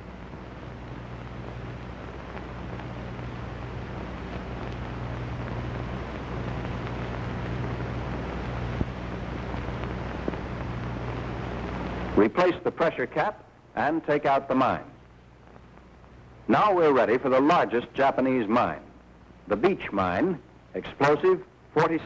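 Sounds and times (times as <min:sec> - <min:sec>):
film soundtrack hiss and hum: 0:00.0 - 0:22.0
faint crackle clicks: 0:00.1 - 0:12.2, 0:15.0 - 0:16.4.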